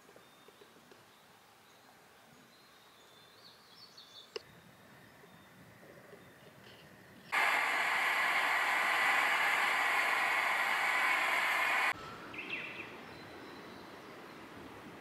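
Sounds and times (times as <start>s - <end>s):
fuel burner hissing: 7.3s - 12.0s.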